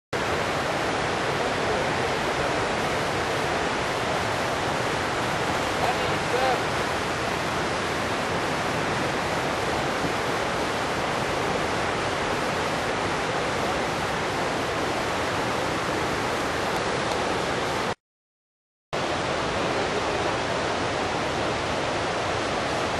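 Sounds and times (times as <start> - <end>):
fast river water rushing: 0.2 - 18.0, 19.0 - 22.9.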